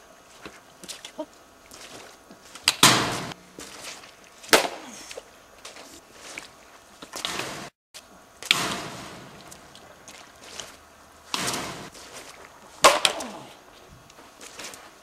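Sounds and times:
ball being struck crack: 0:02.6 - 0:03.4, 0:04.5 - 0:05.0, 0:12.8 - 0:13.5.

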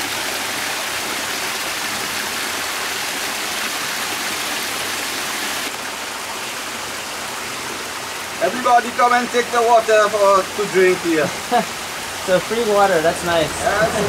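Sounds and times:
water running and splashing: 0:00.0 - 0:14.0.

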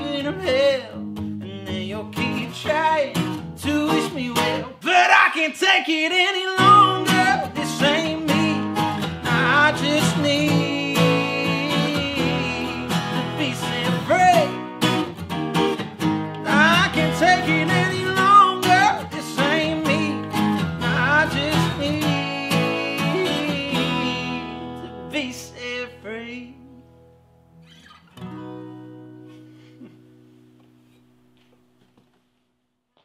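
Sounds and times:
man singing: 0:00.0 - 0:15.1, 0:16.0 - 0:26.9
acoustic guitars strumming: 0:00.0 - 0:32.2.

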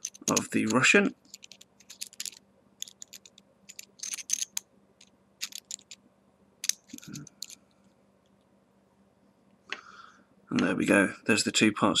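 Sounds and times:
small metal parts clicking: 0:00.0 - 0:06.0, 0:06.6 - 0:07.7.

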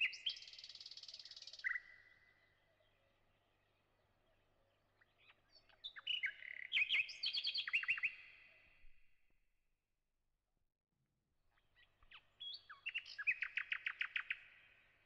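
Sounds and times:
birds chirping and trilling: 0:00.0 - 0:08.5, 0:11.5 - 0:14.8.

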